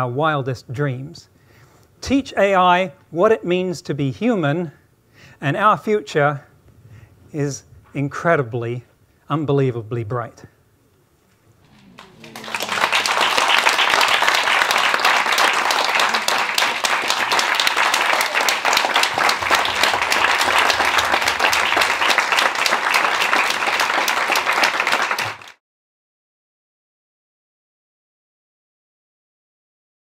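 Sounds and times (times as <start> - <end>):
audience applauding: 11.6 - 25.6.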